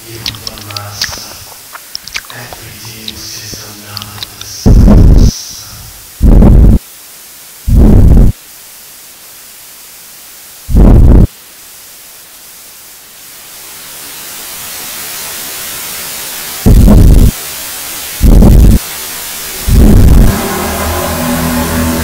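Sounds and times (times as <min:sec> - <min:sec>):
clipped bursts of low noise: 0:00.0 - 0:08.4, 0:10.6 - 0:11.3, 0:16.6 - 0:22.0
steady hiss: 0:00.0 - 0:22.0.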